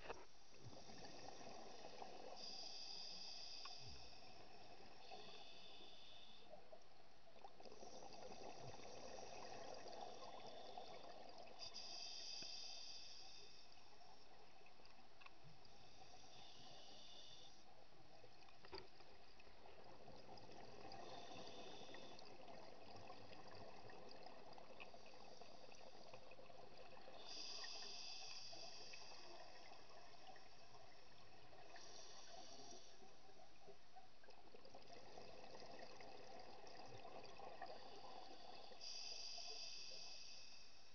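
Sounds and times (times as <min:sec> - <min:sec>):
scuba regulator bubbles underwater: 0:00.0 - 0:06.3, 0:07.4 - 0:14.9, 0:18.2 - 0:40.2
steady underwater hiss: 0:00.0 - 0:40.9.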